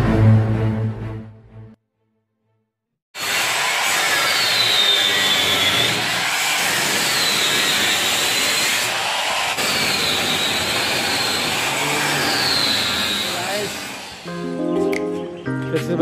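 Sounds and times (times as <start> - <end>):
angle grinder cutting steel: 3.2 - 14.3.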